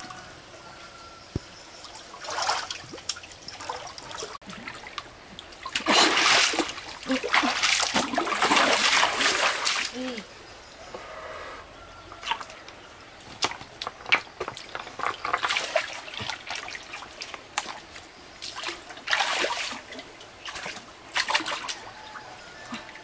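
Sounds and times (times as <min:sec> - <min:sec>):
shallow water splashing: 0:01.9 - 0:10.1.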